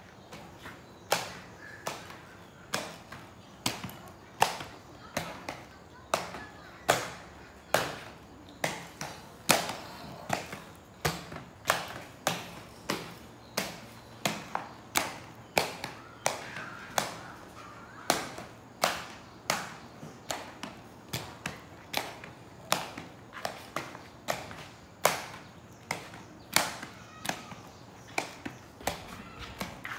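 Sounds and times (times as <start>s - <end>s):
inline skates clacking on concrete: 0.0s - 29.9s.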